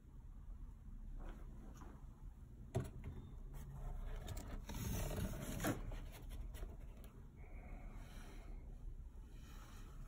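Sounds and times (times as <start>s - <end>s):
cardboard box scraping and rustling: 4.0s - 6.4s.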